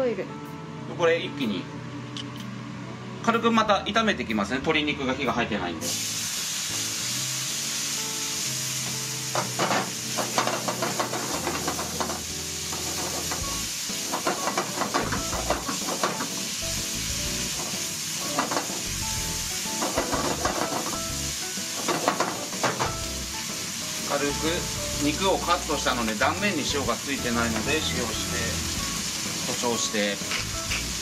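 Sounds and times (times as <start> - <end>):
food sizzling in frying pan: 5.8 - 31.0.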